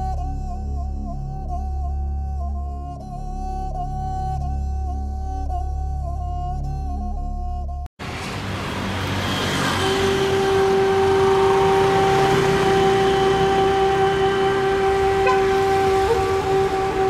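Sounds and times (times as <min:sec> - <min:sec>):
cars and scooters passing: 0:08.0 - 0:17.0.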